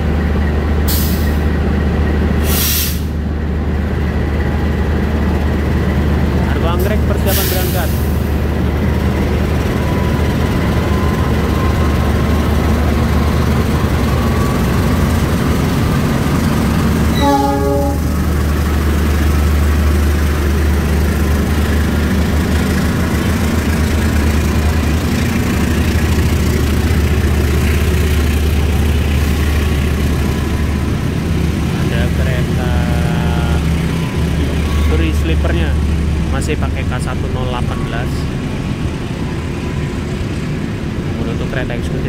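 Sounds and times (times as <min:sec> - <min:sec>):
diesel locomotive engine droning: 0:00.0 - 0:42.0
train horn blast: 0:17.1 - 0:18.3.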